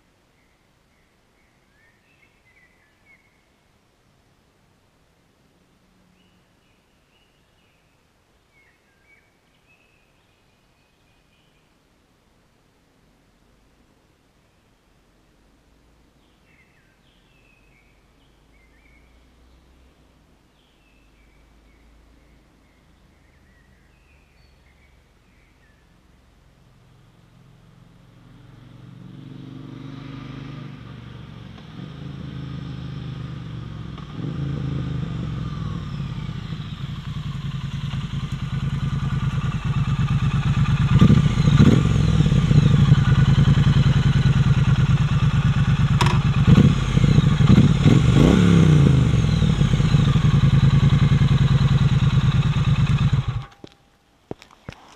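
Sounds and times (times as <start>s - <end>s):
motorcycle engine revving: 28.1s - 53.6s.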